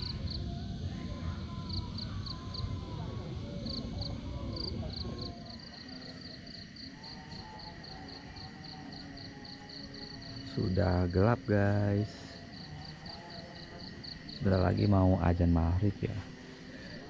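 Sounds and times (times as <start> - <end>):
crickets chirping: 0.0 - 17.0
distant voices: 0.0 - 17.0.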